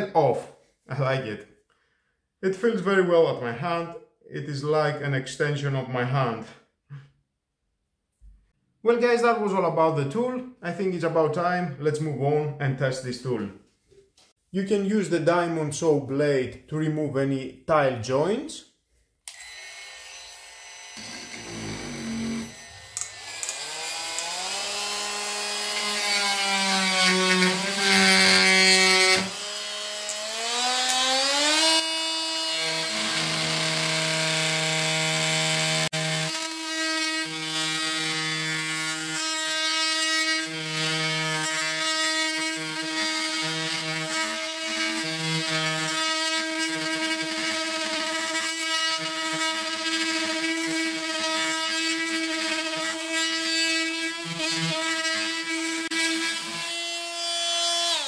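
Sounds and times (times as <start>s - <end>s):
oscillating tool grinding grout: 20.8s - 31.8s, 42.4s - 58.0s.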